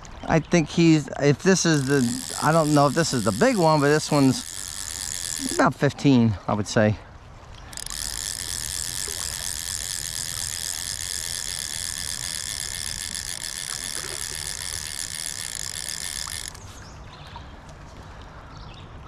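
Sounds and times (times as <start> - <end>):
fishing reel drag buzzing: 0.6 - 6.2, 7.6 - 17.0.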